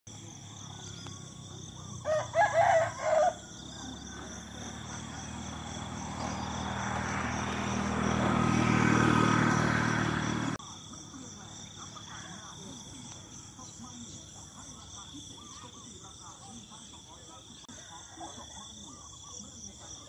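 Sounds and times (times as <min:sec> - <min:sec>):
rooster crowing: 0:01.9 - 0:04.3.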